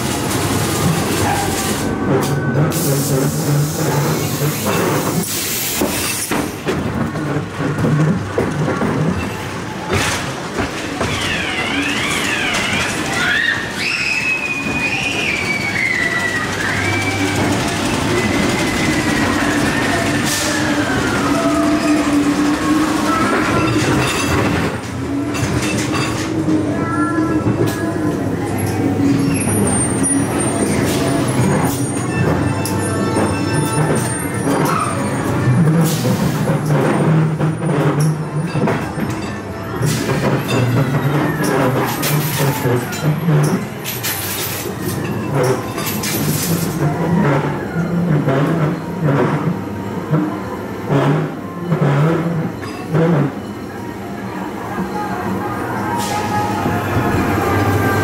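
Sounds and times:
wheels knocking and rattling: 0.0 - 26.6, 28.5 - 53.5
ride car rumbling along track: 0.0 - 58.0
high squeals: 11.0 - 24.4.

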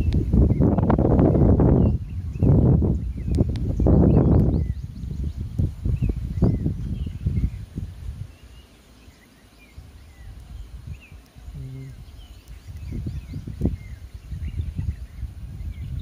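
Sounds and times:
birds chirping: 0.0 - 16.0
brief low tone: 11.6 - 12.0.

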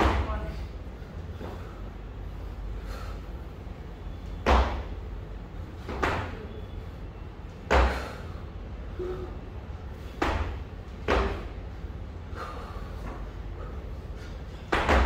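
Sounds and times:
sharp kettlebell impacts: 4.4 - 4.9, 7.7 - 8.0, 10.2 - 11.5, 14.7 - 15.0.

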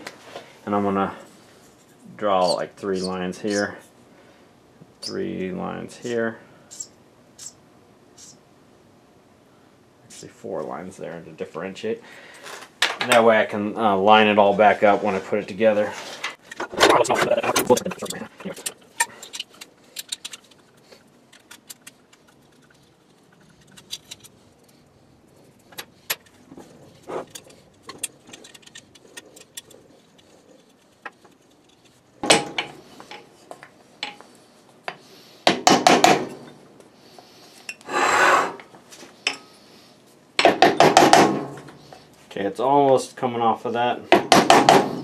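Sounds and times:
metal clinks and scrapes: 16.5 - 24.8, 26.1 - 33.4.

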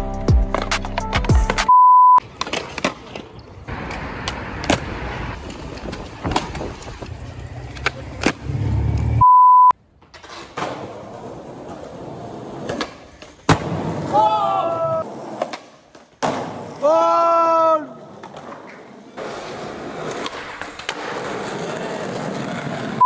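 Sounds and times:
street noise: 0.0 - 23.0
test-tone beep: 1.7 - 2.2, 9.2 - 9.8
skateboard popping on ground: 2.2 - 8.4
skateboard wheels rolling: 2.2 - 9.2, 9.8 - 23.0.

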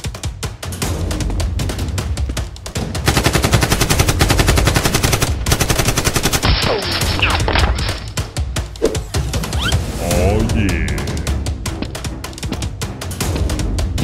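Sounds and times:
automatic gunfire: 3.1 - 6.6.

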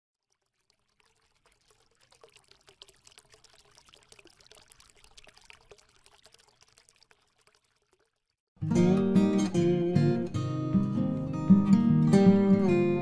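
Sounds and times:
water trickling and pouring: 0.1 - 8.5.

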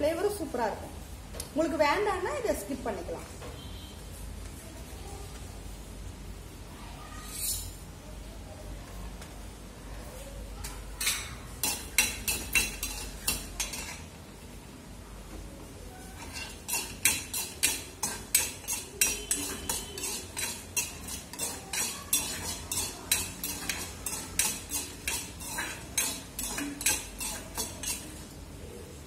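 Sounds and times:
steel ladle scraping a steel pan: 7.2 - 7.8, 11.0 - 14.1, 16.0 - 28.3.

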